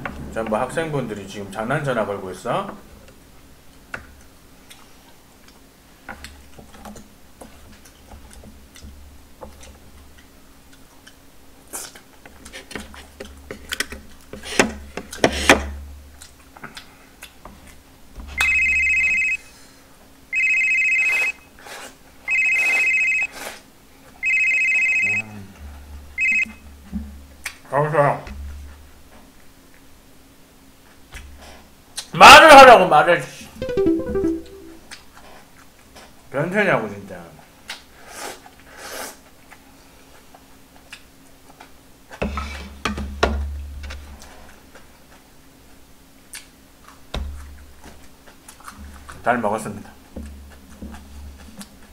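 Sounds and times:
electronic telephone ringing: 18.4s - 19.4s, 20.4s - 21.3s, 22.3s - 23.3s, 24.2s - 25.2s, 26.2s - 26.5s, 33.6s - 34.8s.

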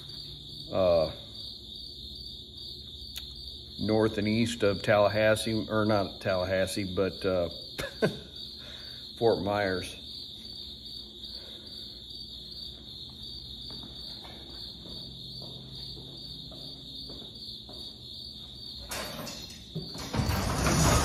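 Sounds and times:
cricket trill: 0.0s - 21.0s
faint footsteps: 12.4s - 18.8s
garage door rattle: 18.8s - 21.0s.

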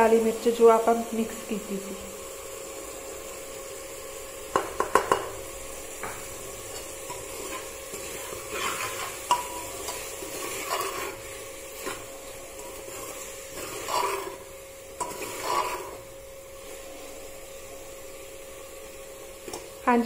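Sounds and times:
food sizzling in oil: 0.0s - 20.0s
ladle scraping pot: 6.7s - 16.1s.

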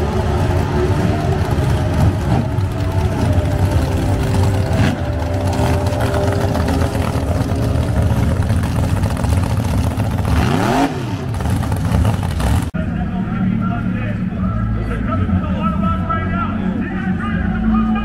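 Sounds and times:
engine revving: 0.0s - 12.8s
drag racing engines idling: 0.0s - 18.0s.

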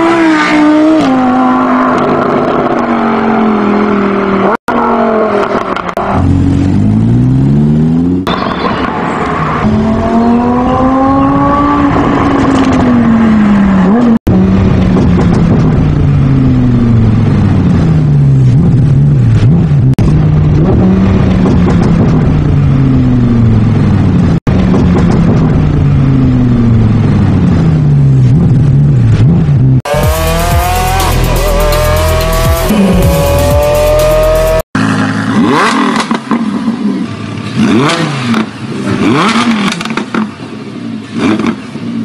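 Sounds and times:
sports car engine revving: 9.3s - 40.4s.

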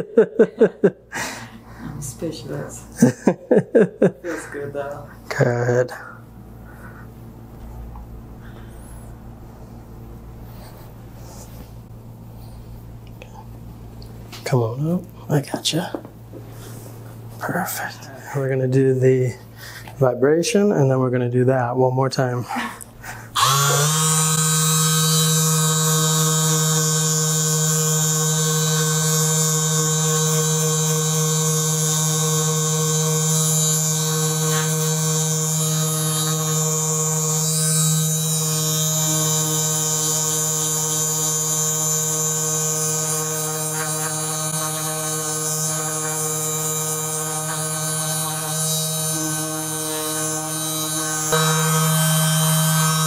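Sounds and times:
massage gun buzzing: 23.0s - 53.0s.

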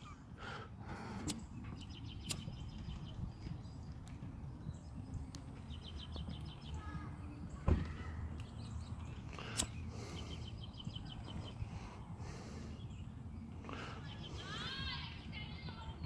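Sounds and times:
outdoor chirping: 0.0s - 16.0s
lighter click: 2.2s - 2.5s, 9.4s - 9.8s
dull thump: 7.6s - 8.0s.

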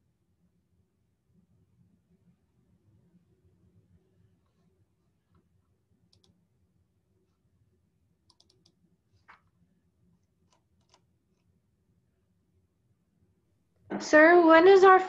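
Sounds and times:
faint computer clicks: 6.1s - 6.4s, 8.3s - 9.5s, 10.5s - 11.5s.

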